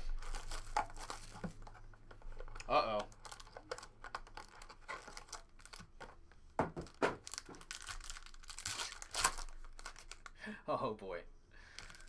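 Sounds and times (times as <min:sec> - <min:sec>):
foil wrapper tearing and crinkling: 0:00.0 - 0:01.7, 0:02.4 - 0:06.0, 0:06.9 - 0:10.4, 0:11.7 - 0:12.0
sharp foil snaps: 0:07.3 - 0:10.2.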